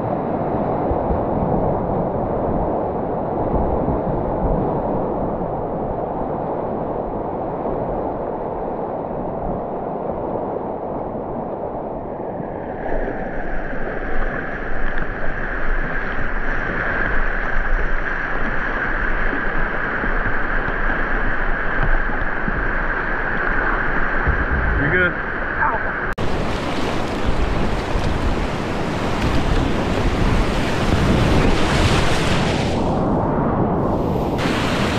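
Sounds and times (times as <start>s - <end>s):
river rapid whitewater rushing: 24.9s - 32.9s, 34.4s - 34.9s.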